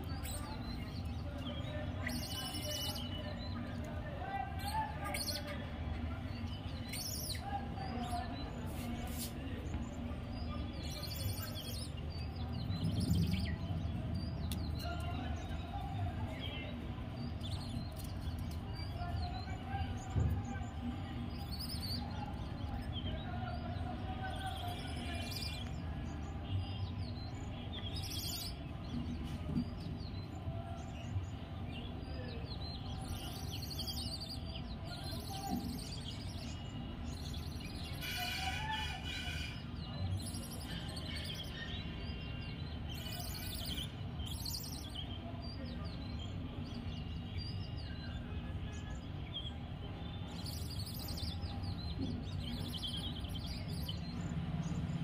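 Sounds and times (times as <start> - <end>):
faint distant voices or music: 0.0 - 55.0
bird chirps: 8.0 - 23.2, 31.1 - 55.0.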